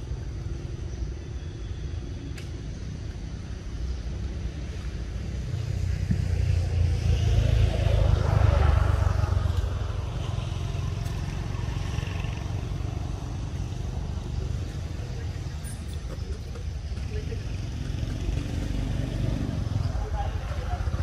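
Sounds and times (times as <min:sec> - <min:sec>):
motor vehicle passing: 0:05.4 - 0:21.0.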